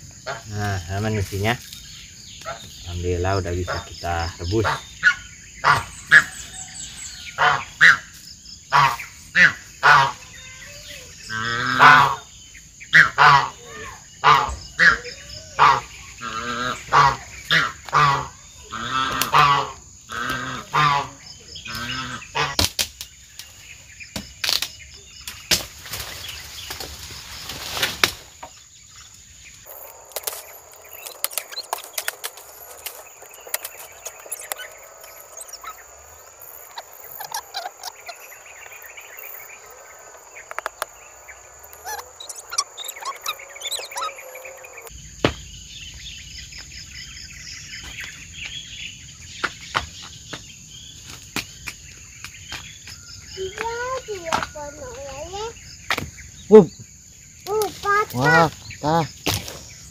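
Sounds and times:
birds chirping: 0:00.0 - 0:59.9
high-pitched insect drone: 0:28.9 - 0:45.0
rising and falling calls: 0:29.6 - 0:44.9.

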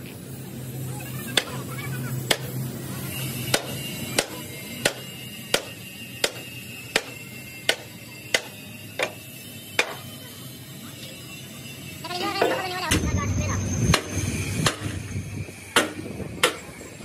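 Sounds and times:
hammer striking metal: 0:03.5 - 0:09.2, 0:09.8 - 0:10.0, 0:15.7 - 0:16.7.

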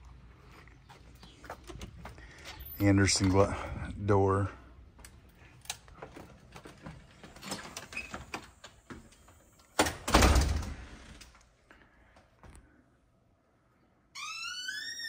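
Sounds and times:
door shutting with heavy thud: 0:09.8 - 0:11.0.

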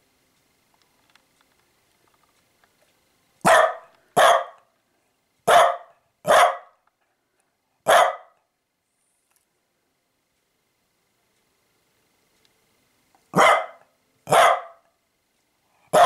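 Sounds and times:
small dog barking: 0:03.4 - 0:04.7, 0:05.4 - 0:06.8, 0:07.8 - 0:08.5, 0:13.3 - 0:15.0.

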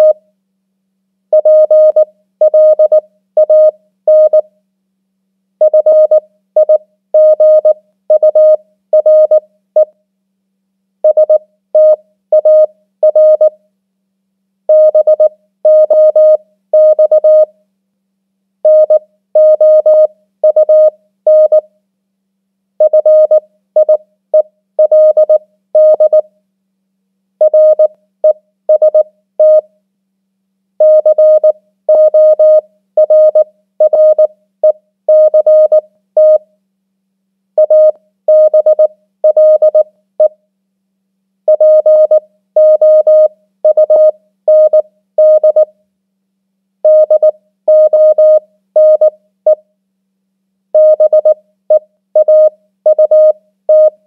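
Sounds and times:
morse code beeps: 0:24.8 - 0:26.2, 0:30.8 - 0:34.3, 0:35.1 - 0:36.4, 0:37.6 - 0:39.8, 0:41.5 - 0:45.7, 0:46.9 - 0:49.1, 0:50.8 - 0:51.4, 0:52.2 - 0:54.0.

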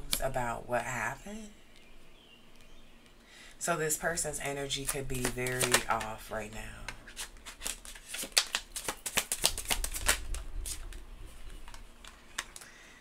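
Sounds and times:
cards being shuffled by hand: 0:04.8 - 0:12.7.

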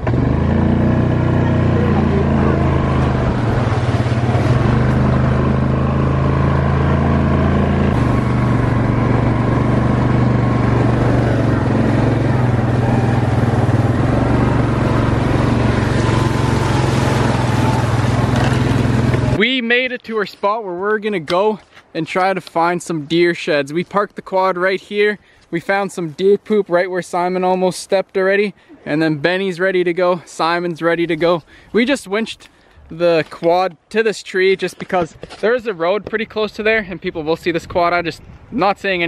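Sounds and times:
atv engine running: 0:00.0 - 0:19.4.

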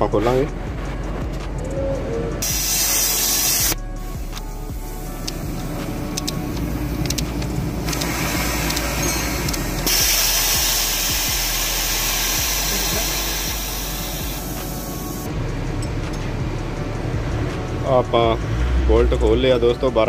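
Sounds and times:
steady hiss: 0:02.4 - 0:05.2, 0:09.8 - 0:15.3.

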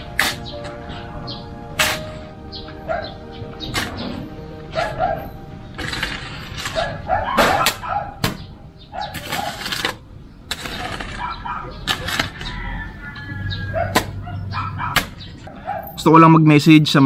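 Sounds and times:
metal shovel digging soil: 0:00.0 - 0:01.0, 0:01.7 - 0:02.4, 0:03.6 - 0:05.0, 0:05.7 - 0:07.9, 0:09.0 - 0:12.5.

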